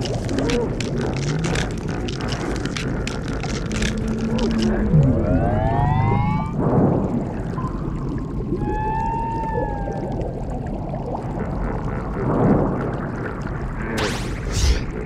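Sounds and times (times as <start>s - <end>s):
underwater rumble: 0.0s - 15.0s
whale-like call: 0.2s - 6.6s, 7.6s - 12.5s
water whoosh: 3.7s - 15.0s.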